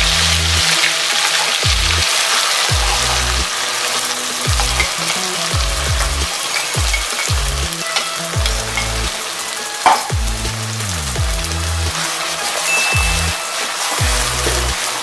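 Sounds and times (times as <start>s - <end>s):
electronic music with heavy bass: 0.0s - 15.0s
paste sizzling in hot oil: 0.0s - 15.0s.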